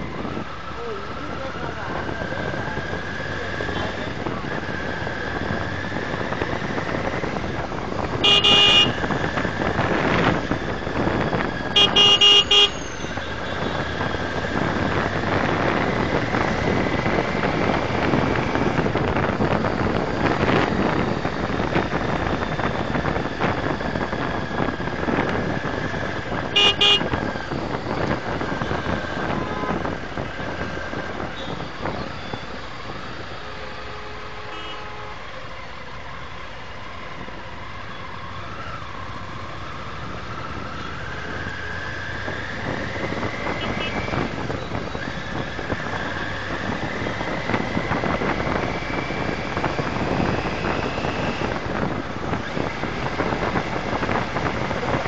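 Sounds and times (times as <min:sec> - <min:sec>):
motorcycle road noise: 0:00.0 - 0:55.0
vehicle horn honking: 0:08.2 - 0:09.1, 0:11.8 - 0:13.8, 0:26.5 - 0:27.2, 0:34.5 - 0:35.2, 0:43.6 - 0:44.0.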